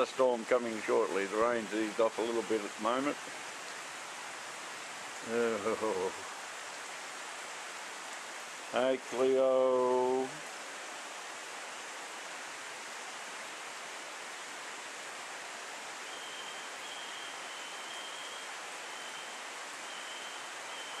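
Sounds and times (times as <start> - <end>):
floodwater rushing: 0.0 - 21.0
faint thin high tone: 16.1 - 21.0.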